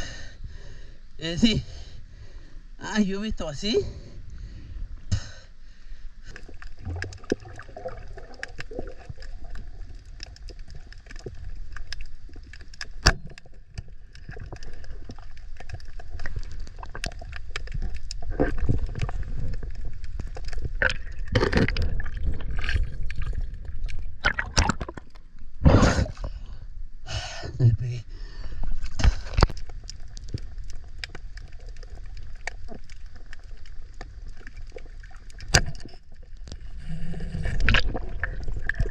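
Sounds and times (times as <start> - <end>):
water sloshing and gurgling: 3.8 - 26.7, 28.1 - 38.9
sharp clicks and crackles: 6.2 - 25.4, 28.8 - 38.9
water splashes: 6.2 - 26.2, 28.7 - 38.9.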